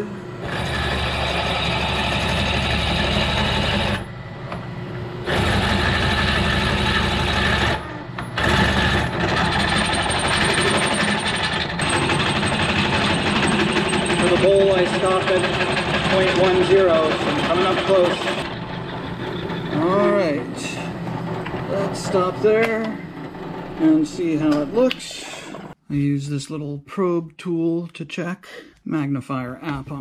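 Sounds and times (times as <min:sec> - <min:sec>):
drill bit grinding into stone: 0:00.4 - 0:04.0, 0:05.3 - 0:24.6.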